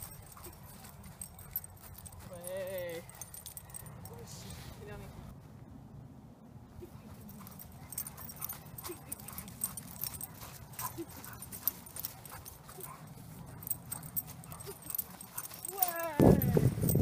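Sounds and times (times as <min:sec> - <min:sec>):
running footsteps on crusty snow: 0:08.0 - 0:17.0.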